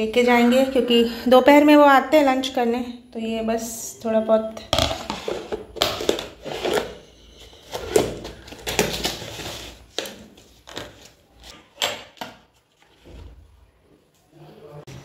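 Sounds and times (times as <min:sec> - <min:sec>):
plastic containers clicking and knocking: 0:04.7 - 0:07.0.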